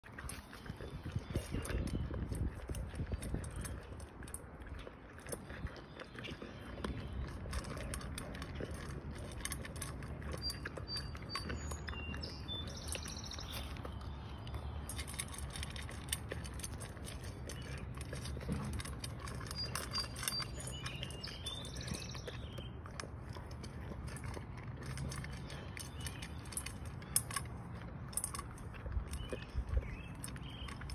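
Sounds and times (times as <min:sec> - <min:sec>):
dog crunching dry kibble: 0:00.0 - 0:30.9
bird chirping and trilling: 0:19.5 - 0:22.8.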